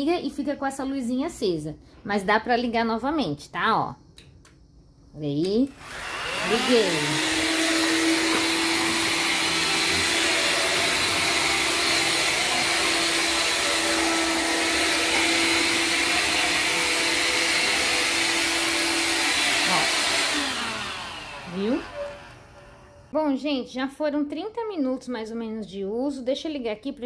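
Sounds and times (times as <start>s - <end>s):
stick vacuum running: 5.7s - 23.1s.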